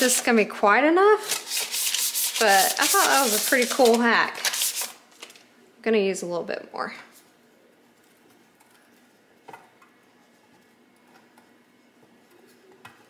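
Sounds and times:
butter rubbing on metal pan: 1.3 - 4.8.

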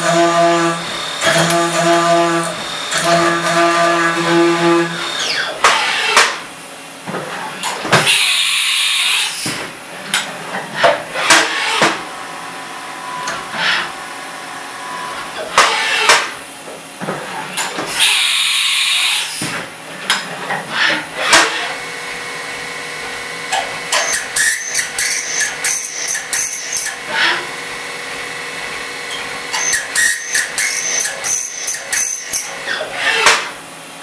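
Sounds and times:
mill cutting metal chatter: 7.3 - 16.4, 23.0 - 33.6.

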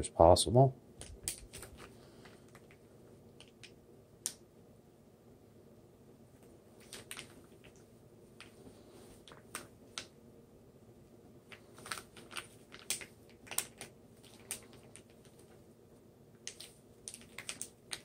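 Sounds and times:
plastic bag crinkling: 6.8 - 7.8, 11.5 - 15.6, 16.4 - 18.0.

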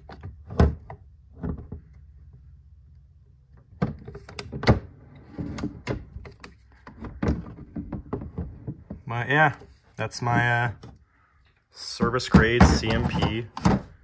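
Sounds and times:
rubbing and scraping: 4.9 - 14.0.

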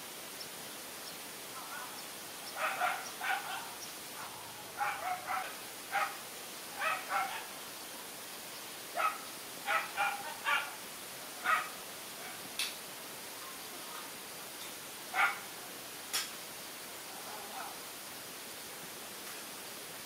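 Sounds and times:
dog barking: 2.6 - 6.2, 6.8 - 7.5, 9.0 - 10.8, 11.4 - 12.4, 15.1 - 15.5.

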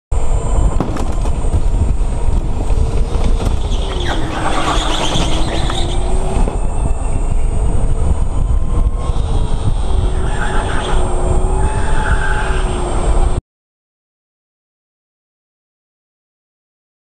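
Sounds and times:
go-kart engine rumble: 0.2 - 13.4.

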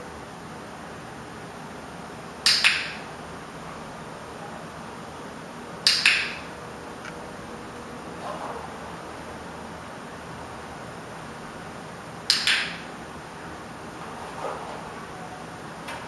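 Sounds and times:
dog-training clicker clicking: 2.4 - 3.0, 5.8 - 6.5, 12.3 - 12.8.

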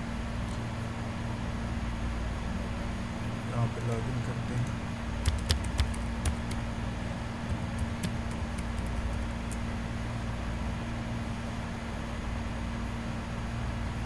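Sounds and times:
low electrical hum: 0.0 - 14.0
keyboard and mouse clicks: 4.5 - 6.6, 7.5 - 9.6.

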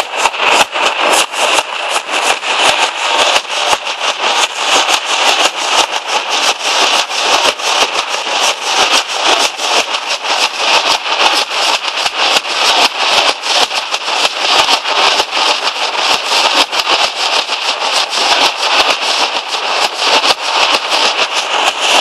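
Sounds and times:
drums beaten in fast rhythm: 0.0 - 22.0.

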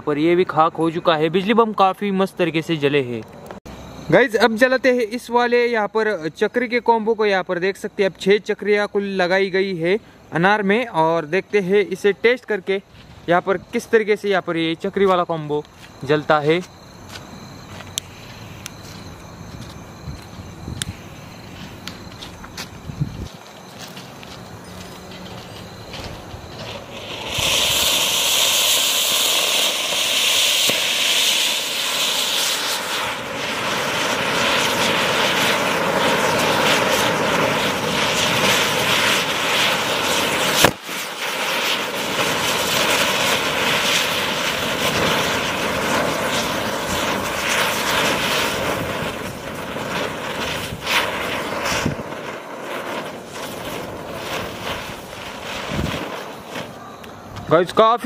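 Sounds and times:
fireworks sparks hissing: 11.6 - 58.0
steady whine: 12.8 - 58.0
firework bang: 25.8 - 57.6.

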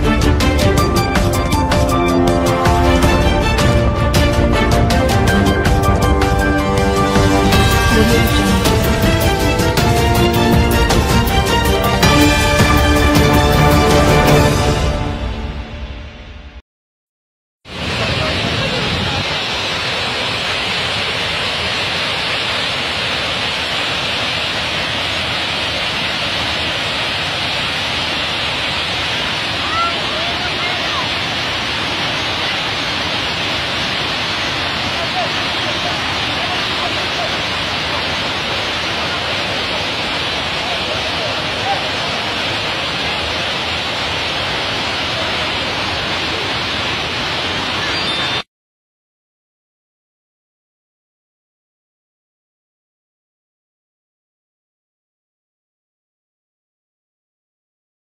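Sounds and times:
water rushing over weir: 17.7 - 48.5.

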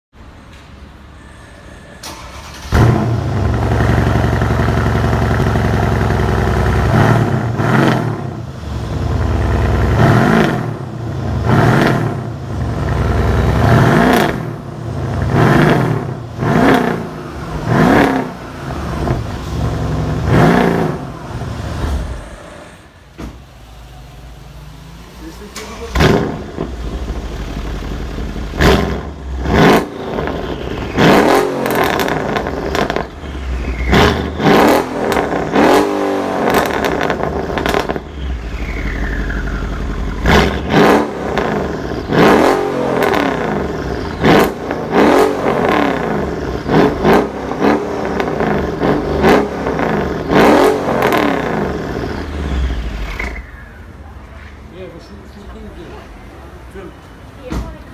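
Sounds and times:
engine revving and blipping: 13.0 - 21.1, 28.5 - 53.7.

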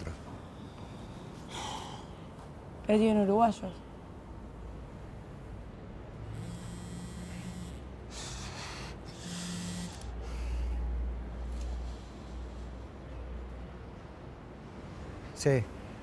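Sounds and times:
phone buzzing on vibrate: 6.3 - 10.2.

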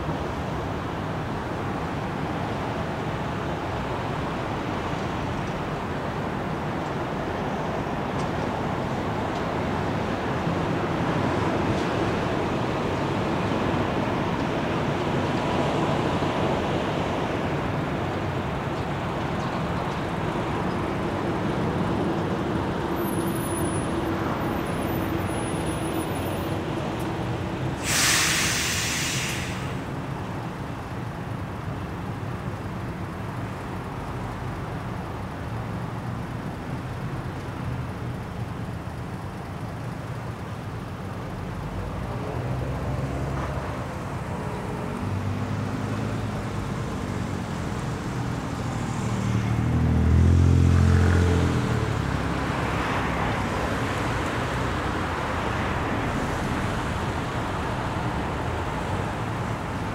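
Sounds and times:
road traffic: 0.0 - 59.9
air brake hiss: 27.8 - 29.9.

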